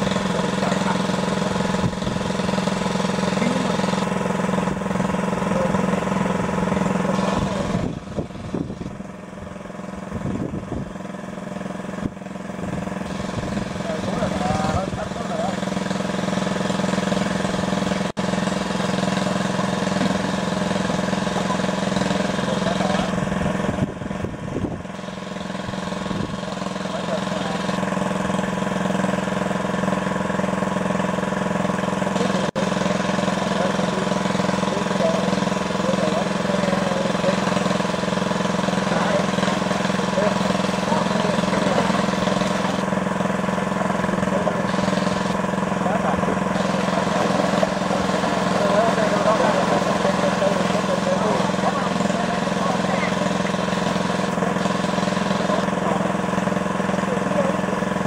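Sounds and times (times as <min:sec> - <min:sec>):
small engine running: 0:00.0 - 0:58.0
faint voices: 0:44.1 - 0:58.0.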